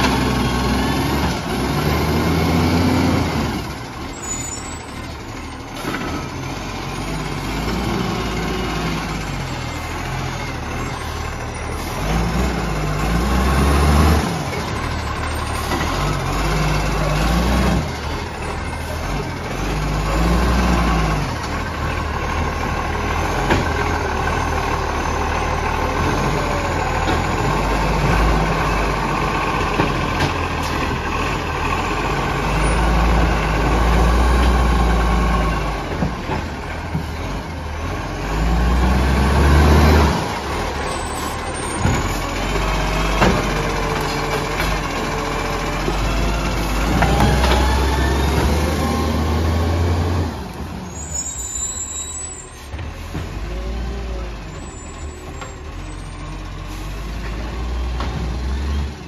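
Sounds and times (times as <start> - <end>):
garbage truck diesel engine: 0.0 - 59.0.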